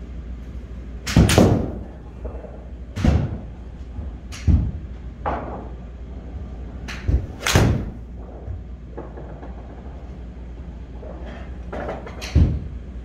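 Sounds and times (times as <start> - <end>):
golf club striking ball: 6.9 - 8.0.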